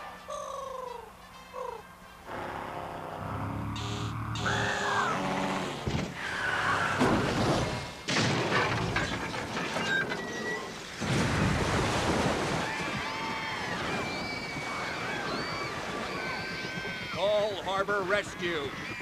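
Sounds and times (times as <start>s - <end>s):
high wavering cries: 0.2s - 7.0s.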